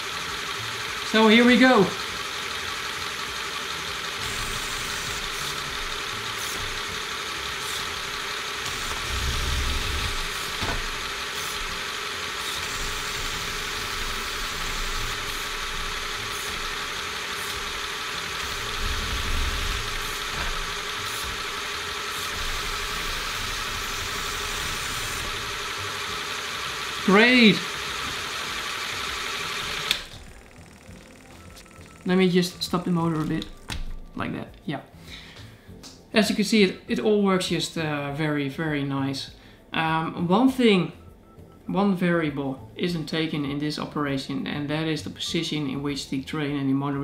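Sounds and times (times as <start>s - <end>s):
air compressor humming with hiss: 0.0s - 34.2s.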